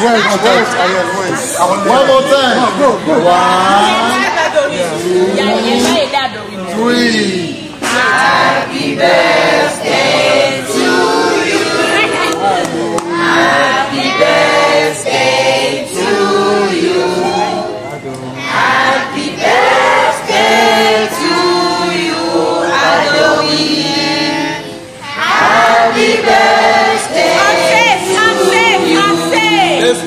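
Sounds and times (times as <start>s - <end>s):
group of voices singing: 7.1s - 30.0s.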